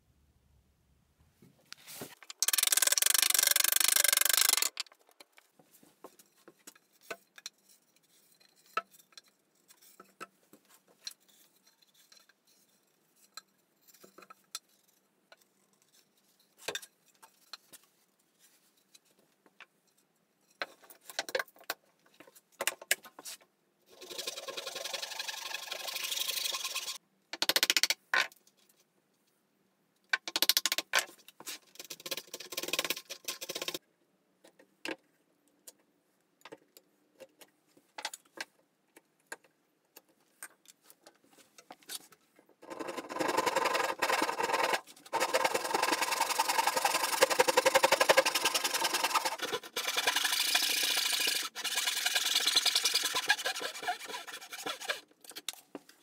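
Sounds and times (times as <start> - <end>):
hand saw cutting wood: 42.7 - 55.1.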